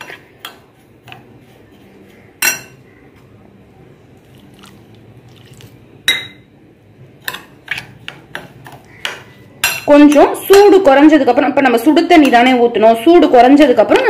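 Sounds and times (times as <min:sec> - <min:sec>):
spoon stirring in glass bowl: 0:00.0 - 0:03.3, 0:07.2 - 0:10.6
spoon clinking against glass: 0:06.1 - 0:06.5.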